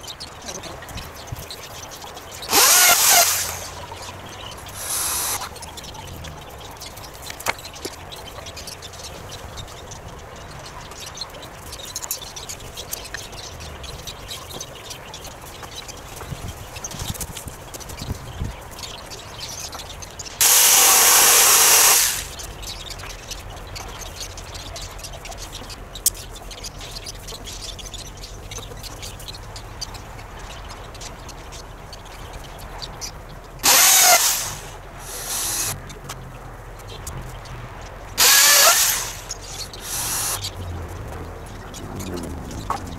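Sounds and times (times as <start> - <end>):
small birds chirping: 0.0 - 42.9
power drill driving fasteners: 2.4 - 3.9, 4.7 - 5.5, 20.4 - 22.4, 33.6 - 35.8, 38.2 - 40.5.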